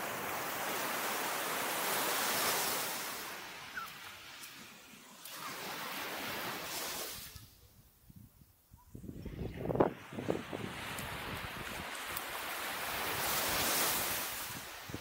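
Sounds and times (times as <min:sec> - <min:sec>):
waves breaking on sandy shore: 0:00.0 - 0:07.6, 0:09.2 - 0:15.0.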